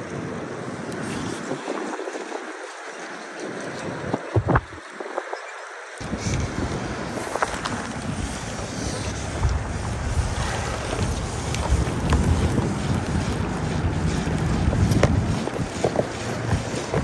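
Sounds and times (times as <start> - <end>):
small waves washing on shore: 0.0 - 17.0
wind buffeting microphone: 0.0 - 17.0.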